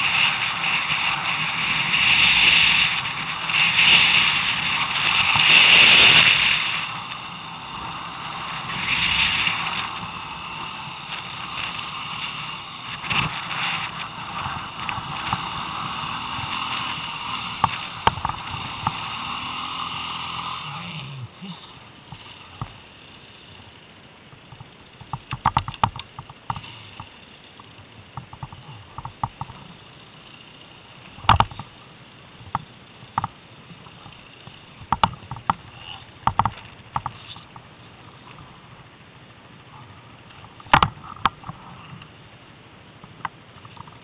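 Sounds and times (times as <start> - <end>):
atv engine revving: 0.0 - 38.6.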